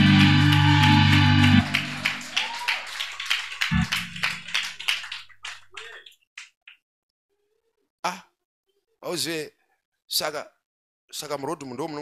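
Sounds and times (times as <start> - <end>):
congregation hand clapping: 0.0 - 6.8.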